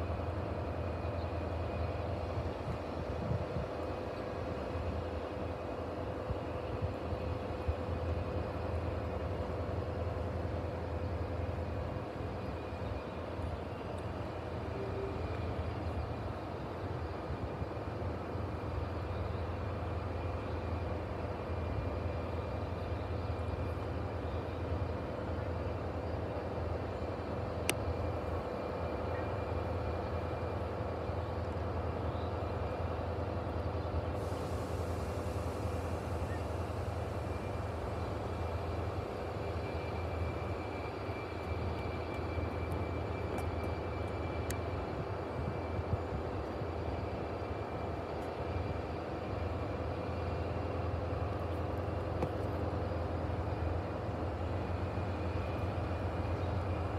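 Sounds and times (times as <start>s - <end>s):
diesel locomotive idling: 0.0s - 56.9s
high hiss: 34.0s - 43.6s.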